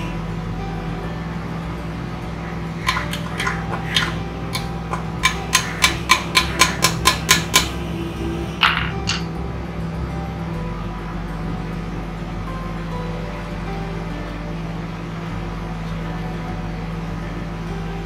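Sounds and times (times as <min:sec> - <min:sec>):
hammer tapping on metal: 0:02.8 - 0:07.8.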